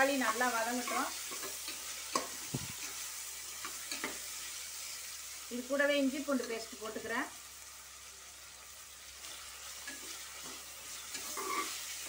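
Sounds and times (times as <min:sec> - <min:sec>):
food sizzling in hot oil: 0:00.0 - 0:12.0
metal spoon scraping pan: 0:09.8 - 0:12.0.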